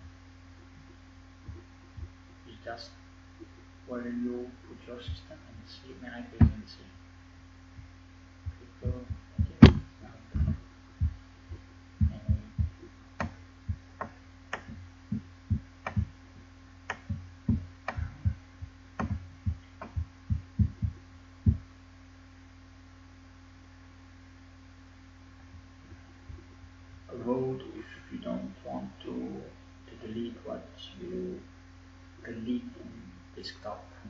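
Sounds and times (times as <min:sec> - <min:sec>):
irregular dull thumps: 0:00.0 - 0:02.6, 0:03.2 - 0:03.8, 0:04.5 - 0:05.7, 0:06.3 - 0:21.9, 0:25.1 - 0:27.1
low electrical hum: 0:00.0 - 0:34.0.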